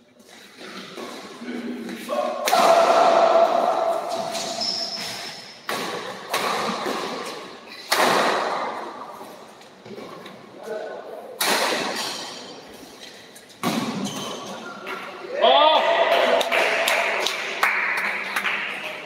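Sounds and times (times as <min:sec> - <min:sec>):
rackets hitting shuttlecock: 0:02.4 - 0:08.9
person shouting: 0:15.3 - 0:16.4.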